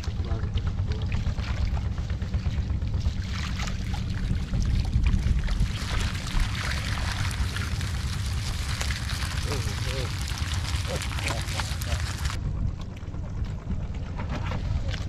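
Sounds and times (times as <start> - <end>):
splashes: 0.0 - 12.4
steady low rumble: 0.0 - 15.0
water sloshing through net: 1.0 - 12.4.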